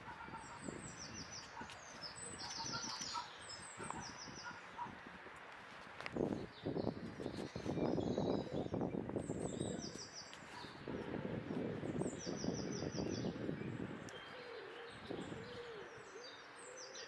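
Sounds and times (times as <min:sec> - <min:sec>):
small bird high calls: 0:00.0 - 0:05.0.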